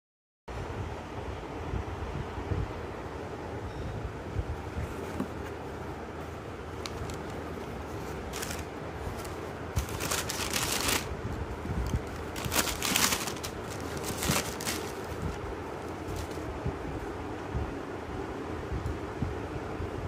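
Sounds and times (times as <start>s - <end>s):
low background noise: 0.5s - 20.0s
tissue paper rustling: 4.6s - 16.7s.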